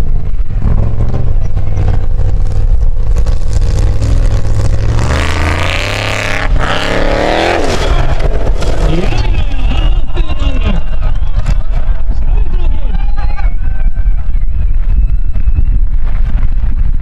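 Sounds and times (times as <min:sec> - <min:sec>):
jeep engine revving under load: 0:00.6 - 0:09.9.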